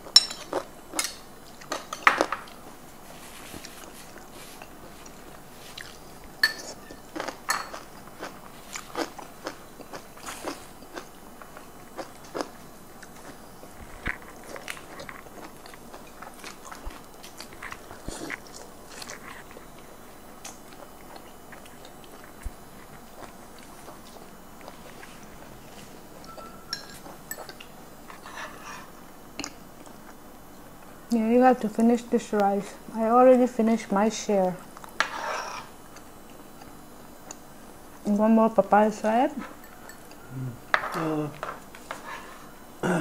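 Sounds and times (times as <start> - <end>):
chewing and crunching food: 0.0 - 31.1.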